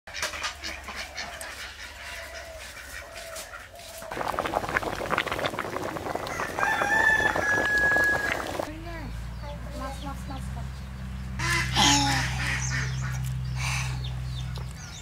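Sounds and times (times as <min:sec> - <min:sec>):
chickens clucking: 0:00.1 - 0:05.0, 0:11.4 - 0:15.0
rooster crowing: 0:06.1 - 0:08.7.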